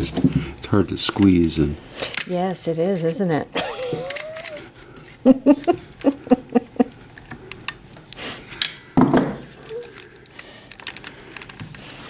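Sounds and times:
person laughing: 3.6 - 7.0.

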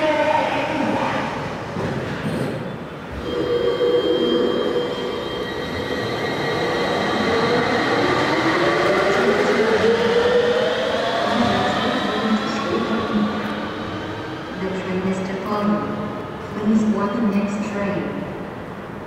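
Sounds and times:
train running noise: 0.0 - 19.0
train traction drive whining: 3.1 - 15.2.

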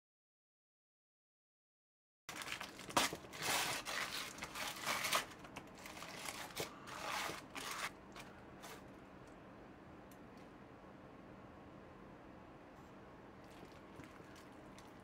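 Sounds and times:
aluminium foil crinkling: 2.3 - 8.9.

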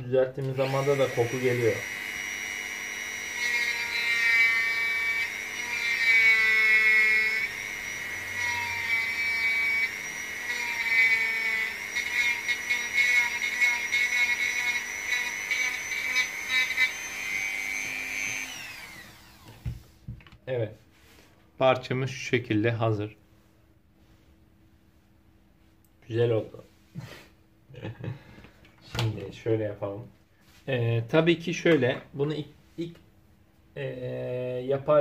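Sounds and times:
rotary tool grinding: 0.5 - 19.6.

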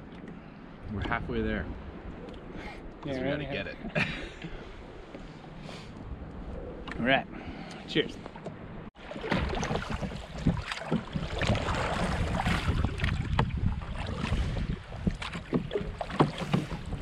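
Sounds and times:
wind rumble on microphone: 0.8 - 3.8, 4.5 - 7.7, 9.4 - 17.0
oars splashing: 7.8 - 17.0
oars knocking in oarlocks: 9.2 - 13.7, 15.0 - 17.0.

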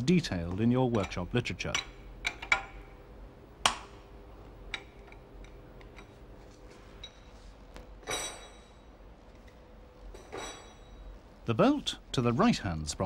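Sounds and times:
spanner clicking on metal: 0.9 - 2.8.

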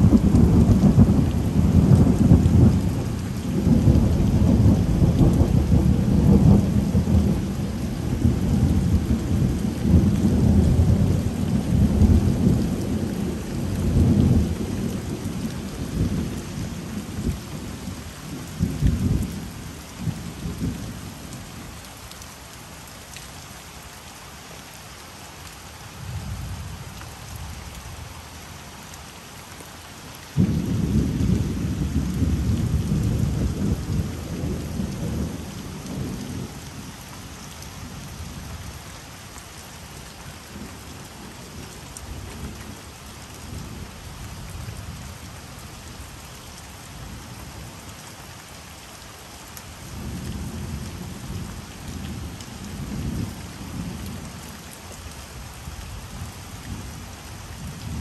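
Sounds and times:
rain hissing: 26.0 - 47.7.

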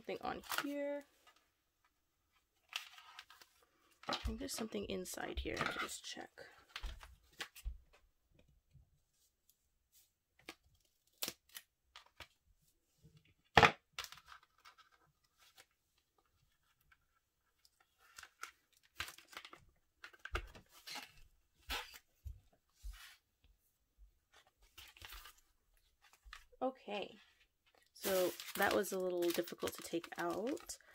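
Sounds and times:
packaging tearing and rustling: 17.8 - 22.0, 28.0 - 30.9.

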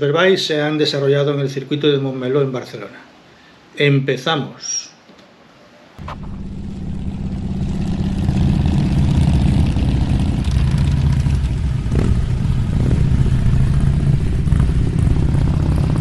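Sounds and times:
motorcycle engine running: 6.0 - 16.0.

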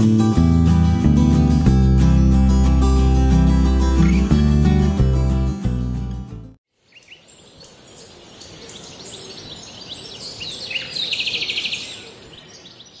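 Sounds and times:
bird trill: 4.0 - 4.3, 6.8 - 13.0
wild birds chirping: 6.7 - 13.0.

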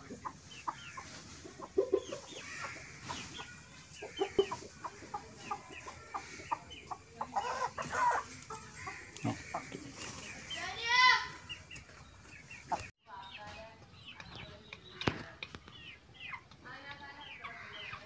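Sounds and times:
chicken calls: 0.0 - 12.9
chickens clucking: 0.0 - 18.0.

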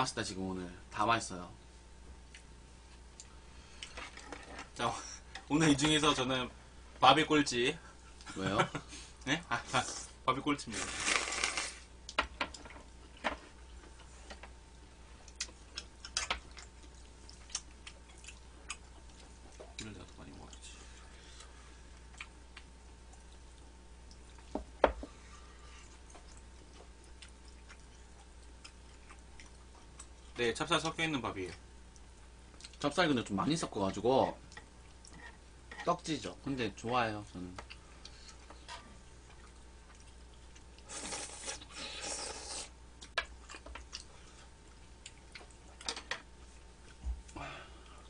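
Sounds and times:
soft chewing: 2.2 - 5.5, 10.8 - 35.8, 36.7 - 48.0
slurping food: 10.7 - 11.8, 40.8 - 42.7.

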